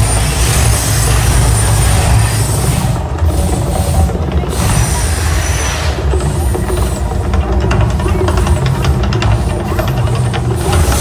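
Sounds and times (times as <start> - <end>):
deep rumble: 0.0 - 11.0
gas flame jets hissing: 0.0 - 11.0.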